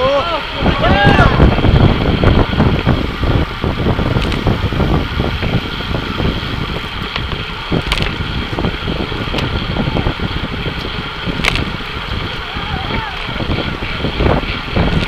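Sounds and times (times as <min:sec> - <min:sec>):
road and tyre rumble: 0:00.0 - 0:15.0
wind buffeting microphone: 0:00.0 - 0:15.0
sharp clicks: 0:07.0 - 0:08.2, 0:11.4 - 0:11.8.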